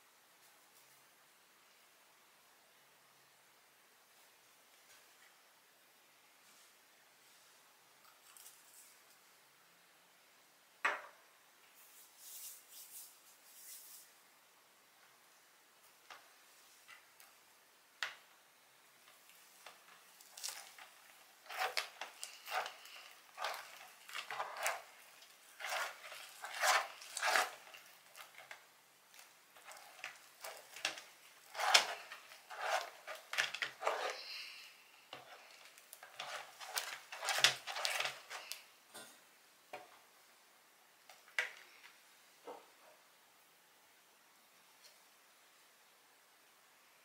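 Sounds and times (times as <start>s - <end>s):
slime squelching and scraping: 19.6s - 38.7s.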